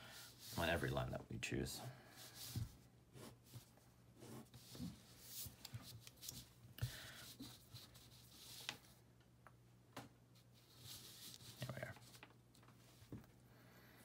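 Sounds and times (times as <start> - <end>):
paper rustling and sliding: 10.5 - 12.3.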